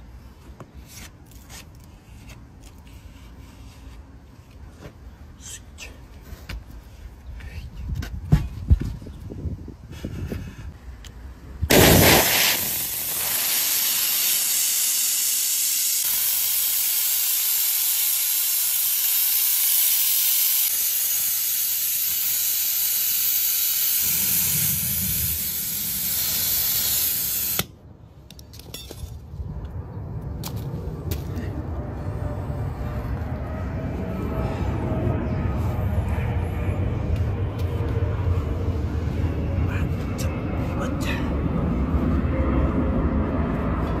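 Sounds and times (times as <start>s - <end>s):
compressed air hissing: 11.7s - 27.7s.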